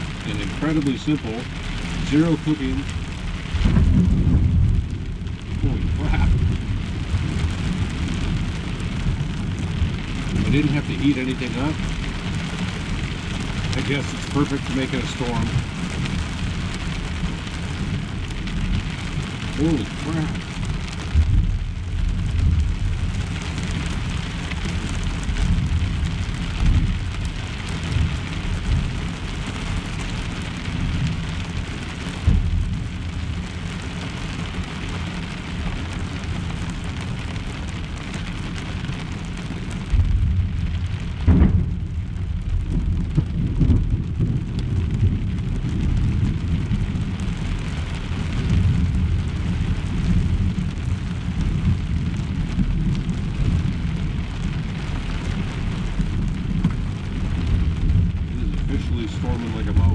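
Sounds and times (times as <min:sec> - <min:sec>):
heavy rain drumming on a shell: 0:00.0 - 0:59.9
thunder rumbling: 0:00.0 - 0:59.9
loud thunder clap: 0:02.8 - 0:12.0, 0:17.0 - 0:29.5, 0:32.2 - 0:33.4, 0:39.8 - 0:47.2.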